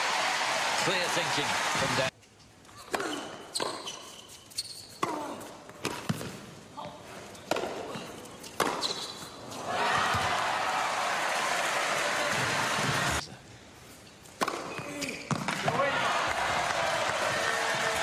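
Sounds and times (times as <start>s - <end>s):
crowd applause: 0.0s - 2.1s, 9.8s - 13.2s, 15.9s - 18.0s
shoes squeaking on court: 2.3s - 6.5s, 7.2s - 10.3s
racket hitting tennis ball: 5.0s - 6.4s, 7.5s - 9.2s, 14.4s - 15.8s.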